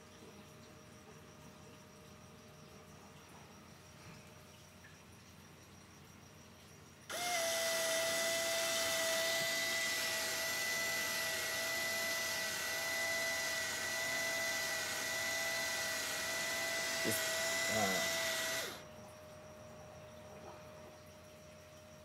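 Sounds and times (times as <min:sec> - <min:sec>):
stepper motor whining: 0:07.1 - 0:18.8.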